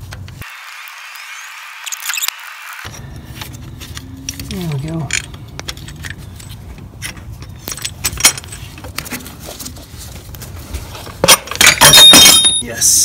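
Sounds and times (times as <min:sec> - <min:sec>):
metal tools and bolts clinking: 0:04.2 - 0:09.4, 0:11.2 - 0:12.8.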